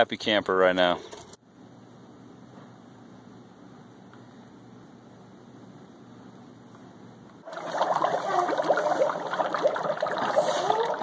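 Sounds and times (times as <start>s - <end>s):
dry ice bubbling in liquid: 7.4s - 11.0s.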